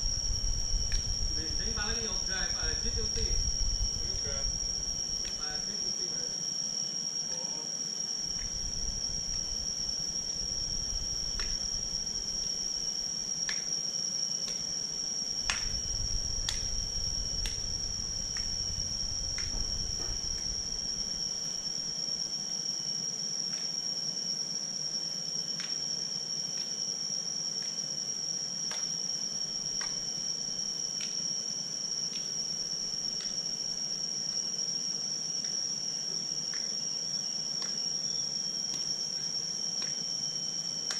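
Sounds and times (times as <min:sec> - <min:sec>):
low rumble: 0:00.0 - 0:05.4, 0:15.4 - 0:21.1
high-pitched insect drone: 0:00.0 - 0:40.9.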